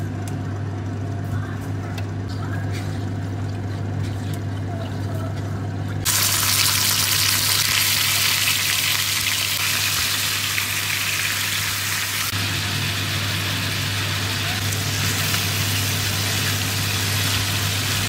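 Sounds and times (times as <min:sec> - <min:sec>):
meat sizzling in hot oil: 0:06.1 - 0:18.0.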